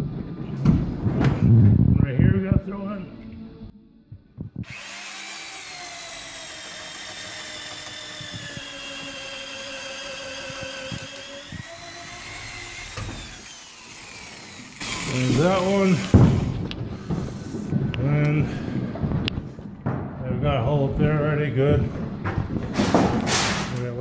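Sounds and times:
electric drill boring: 4.6s - 17.8s
knocks on wood: 16.0s - 17.9s.

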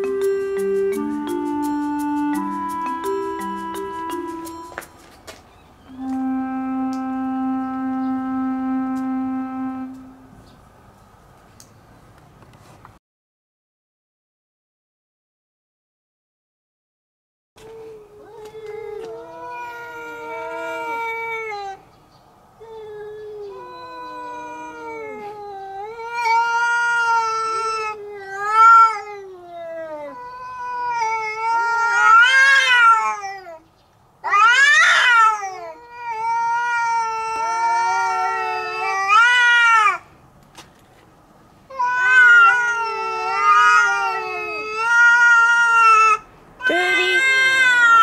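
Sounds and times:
cats yowling: 17.7s - 21.8s, 22.6s - 33.6s, 34.2s - 40.0s, 41.7s - 48.0s.

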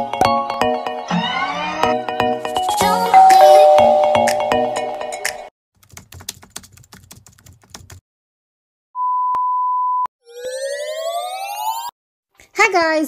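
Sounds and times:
jingle: 2.5s - 5.3s
rapid typing-like clicks: 5.8s - 8.0s.

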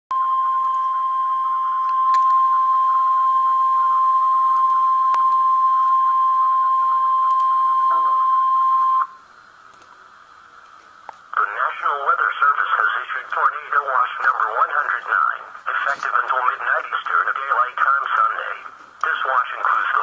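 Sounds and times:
steady high alarm tone: 0.1s - 9.2s
faint radio hiss: 6.7s - 20.0s.

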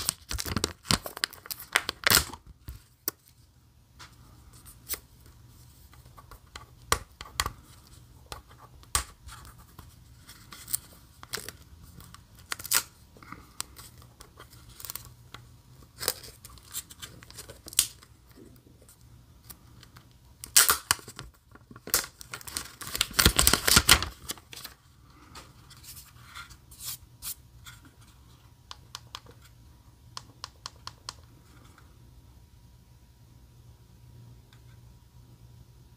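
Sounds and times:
plastic film tearing and crinkling: 0.0s - 2.4s, 12.4s - 12.9s, 16.0s - 18.1s, 20.4s - 24.7s.

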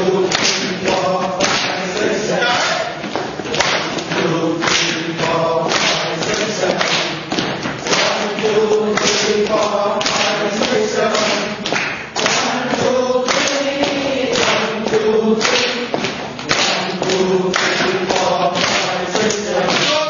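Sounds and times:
hand claps: 0.0s - 20.0s
voices chanting in unison: 0.0s - 20.0s.

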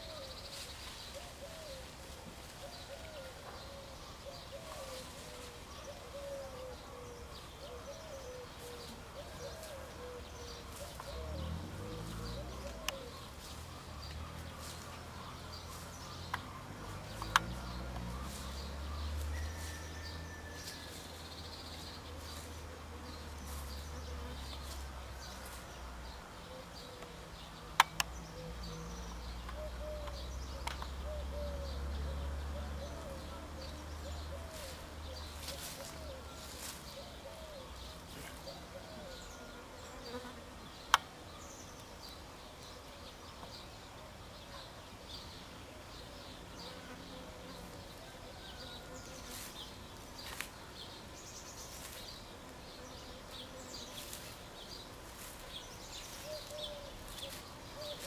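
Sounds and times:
sharp clicks: 27.8s - 28.2s.

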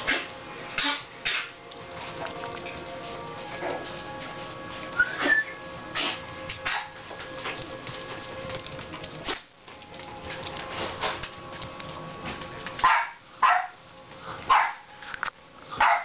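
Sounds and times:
puppy barking: 6.0s - 7.0s, 12.8s - 13.8s, 14.5s - 14.9s, 15.8s - 16.0s.

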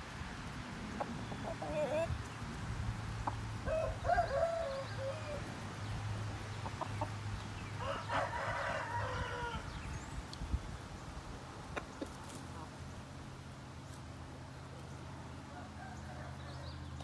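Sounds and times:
rooster crowing: 3.6s - 5.5s, 7.8s - 9.8s, 15.5s - 16.9s.

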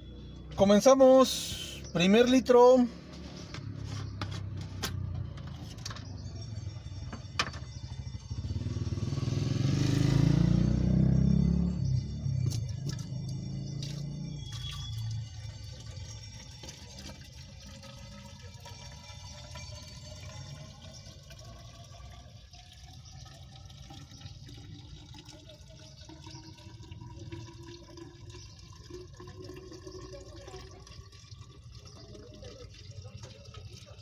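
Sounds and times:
liquid pouring into a plastic cylinder: 12.4s - 34.0s.

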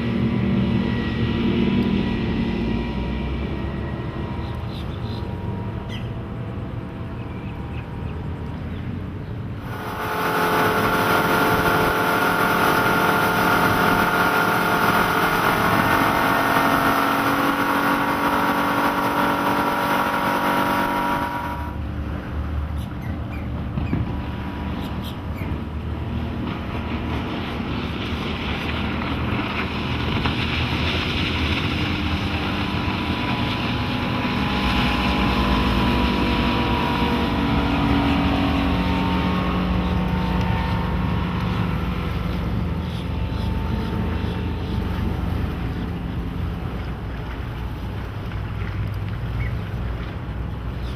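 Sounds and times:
boat passing with low rumble: 0.0s - 50.9s
outboard boat engine: 0.0s - 50.9s
wind and water rushing: 0.0s - 50.9s.

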